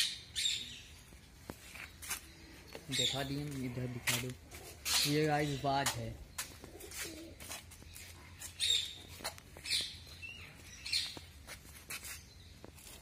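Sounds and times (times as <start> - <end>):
bird chirping: 0.0 - 4.2, 7.8 - 11.4.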